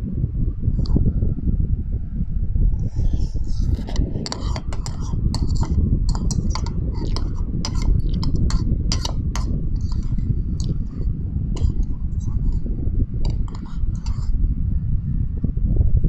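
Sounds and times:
low rumble: 0:00.0 - 0:16.0
cutlery clinking against ceramic bowl: 0:04.3 - 0:10.7.

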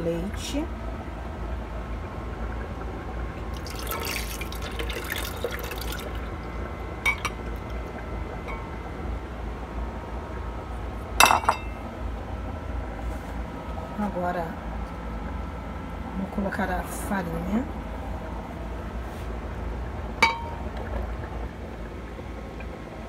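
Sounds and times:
milk pouring into glass jar: 0:03.6 - 0:06.3.

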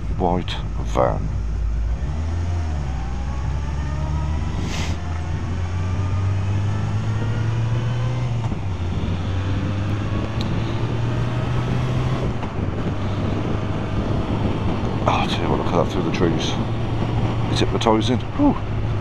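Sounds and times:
wind noise: 0:00.0 - 0:19.0
faint whine rising in pitch: 0:00.6 - 0:12.6.

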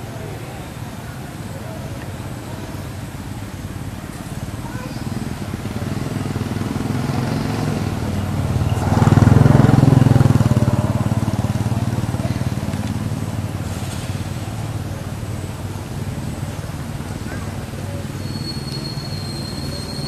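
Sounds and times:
vehicle engine passing by: 0:04.6 - 0:18.2.

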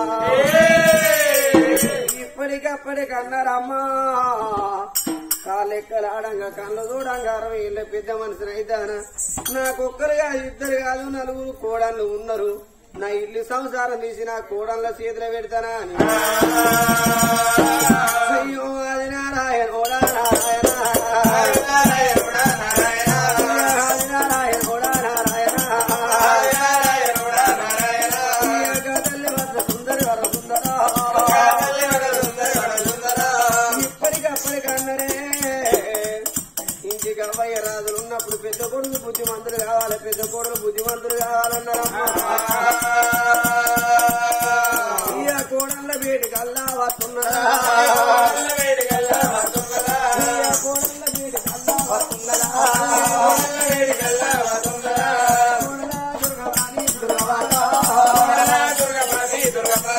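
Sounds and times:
drum beat: 0:00.0 - 0:02.3, 0:16.0 - 0:18.4, 0:19.9 - 0:59.9
person singing folk song: 0:00.0 - 0:59.9
jingling rattle: 0:19.8 - 0:59.9.

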